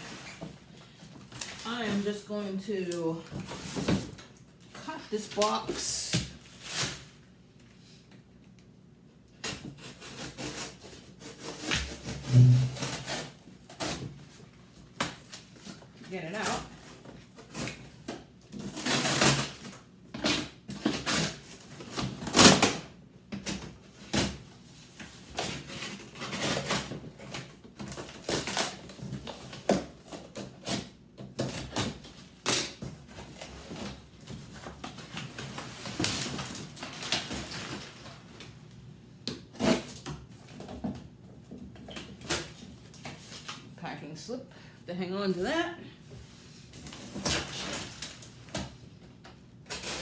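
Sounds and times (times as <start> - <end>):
knife cutting cardboard box: 9.4 - 14.1, 17.4 - 22.8, 25.2 - 37.8, 39.5 - 40.8, 49.6 - 50.0
cardboard scrapes and rustles: 9.5 - 14.4.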